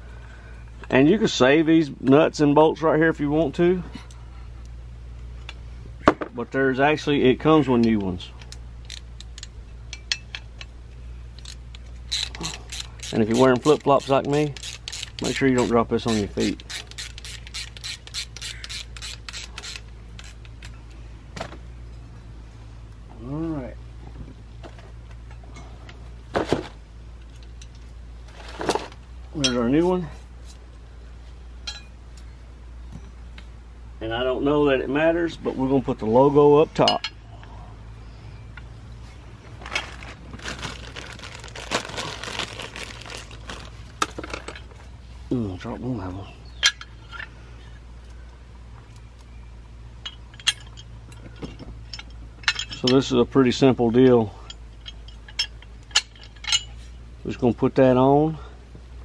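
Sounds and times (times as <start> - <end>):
ratchet wrench clicking: 8.4 - 10.7, 11.3 - 20.8
plastic bag crinkling: 39.6 - 44.5.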